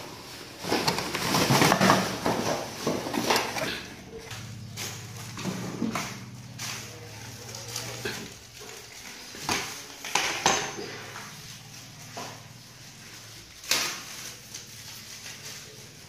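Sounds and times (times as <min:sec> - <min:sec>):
steady low hum: 0:00.0 - 0:10.0
fan parts clinking: 0:00.0 - 0:15.8.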